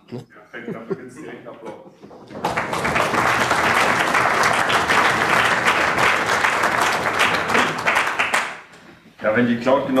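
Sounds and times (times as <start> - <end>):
audience applauding: 2.2 - 8.7.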